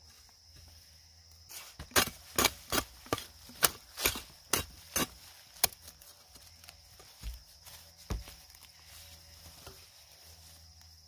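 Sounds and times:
hand hoe chopping into soil: 1.5s - 6.1s.

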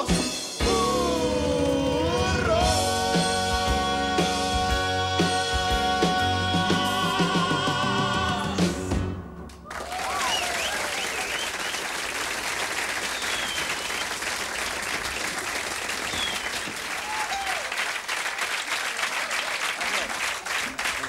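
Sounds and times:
audience cheering: 9.5s - 21.0s
audience applause: 9.6s - 21.0s.

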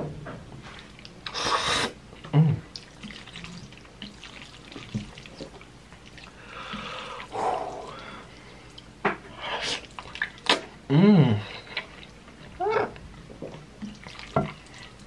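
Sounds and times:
slurping noodles: 1.3s - 2.0s
wet mouth clicks: 10.4s - 10.7s.

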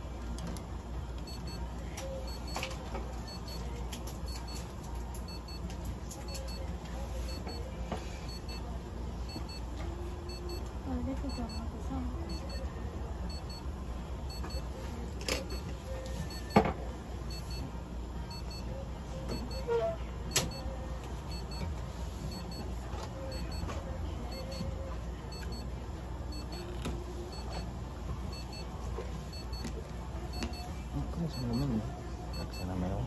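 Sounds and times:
high electronic beeps: 12.3s - 12.7s, 23.3s - 23.7s, 24.3s - 24.6s.

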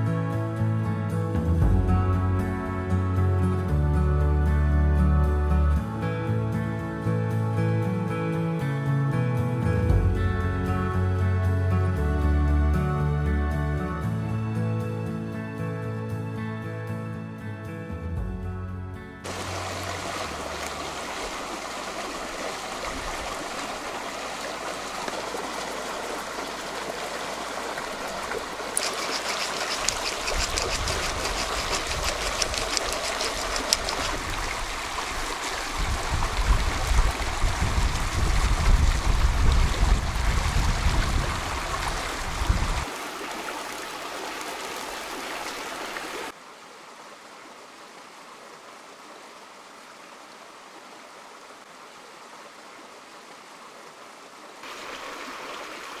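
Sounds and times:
stream running over rocks: 19.2s - 56.0s
fast ticking: 28.8s - 34.2s.

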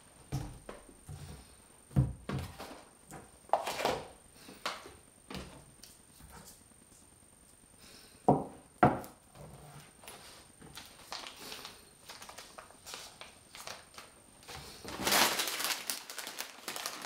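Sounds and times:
packages knocking on wooden table: 8.3s - 9.2s.

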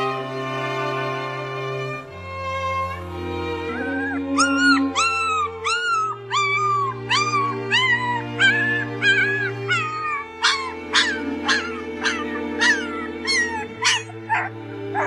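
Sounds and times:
puppies crying and yelping: 3.5s - 15.0s.

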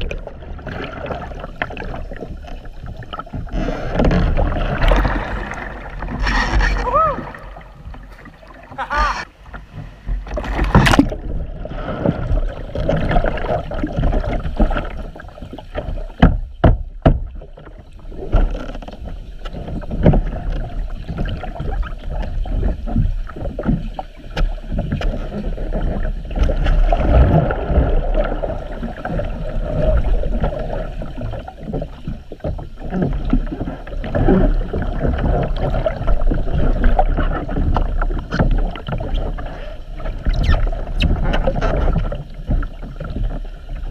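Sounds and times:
bubbling: 0.0s - 9.3s, 24.8s - 43.9s
muffled underwater splashing: 0.0s - 43.9s
paddle and hull knocks: 0.0s - 43.9s.

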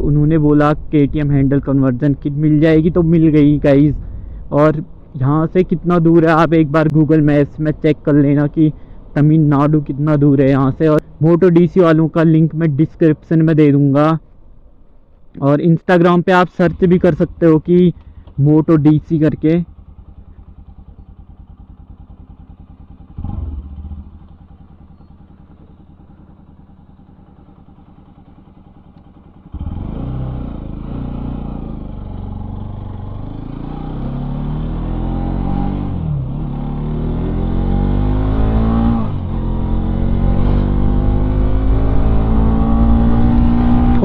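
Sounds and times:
motorcycle engine idling: 16.7s - 33.4s
motorcycle accelerating through gears: 19.7s - 44.0s.

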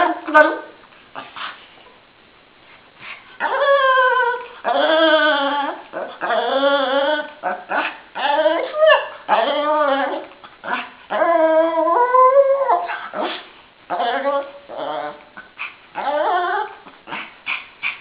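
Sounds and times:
dog whining: 3.4s - 17.3s.

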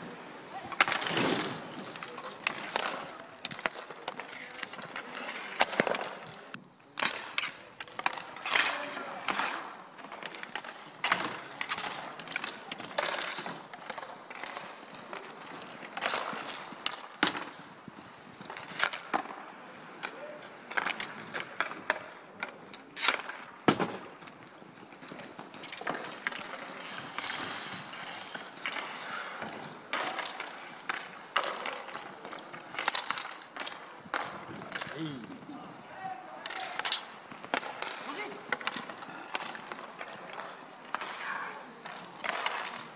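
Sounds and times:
hockey sticks clacking: 0.0s - 42.9s
inline skate wheels rolling: 0.0s - 42.9s.

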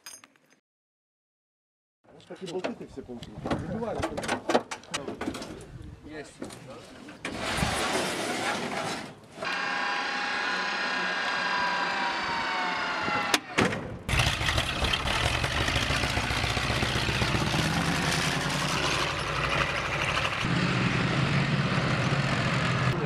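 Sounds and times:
drive motor whining: 9.4s - 13.6s
tracked vehicle engine rumbling: 14.1s - 23.0s.

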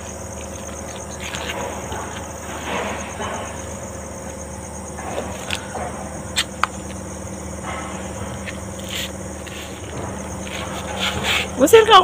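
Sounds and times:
insects chirping: 0.0s - 12.0s
low hum: 0.0s - 12.0s.

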